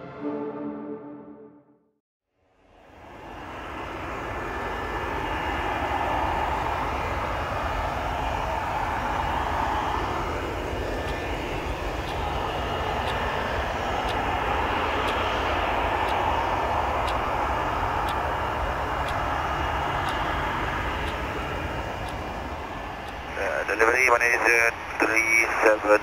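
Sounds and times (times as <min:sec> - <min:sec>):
jet engines rushing hum: 0:02.5 - 0:26.0
faint tick: 0:15.0 - 0:16.2.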